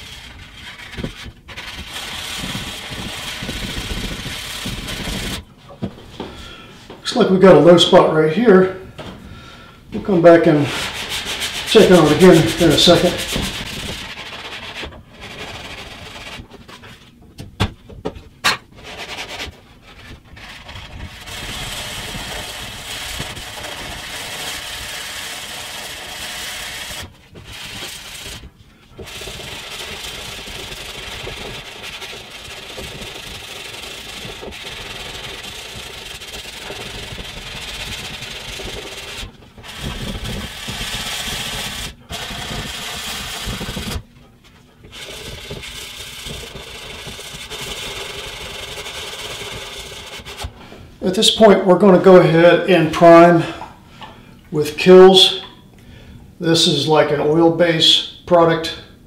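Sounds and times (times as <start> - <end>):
sanding sponge rubbing: 0.0 - 5.4, 10.3 - 17.0, 18.8 - 44.0, 44.9 - 50.6.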